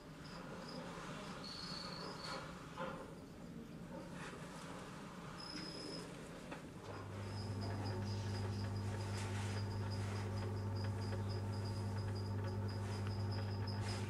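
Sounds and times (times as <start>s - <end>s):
steady low hum: 6.9s - 14.0s.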